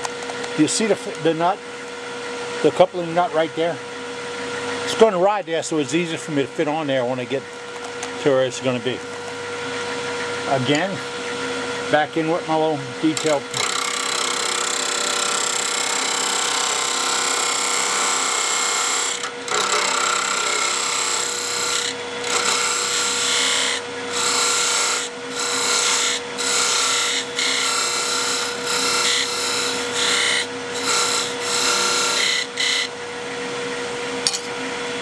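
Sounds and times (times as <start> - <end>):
lathe hum: 0.0 - 35.0
gouge cutting wood on lathe: 13.2 - 32.9.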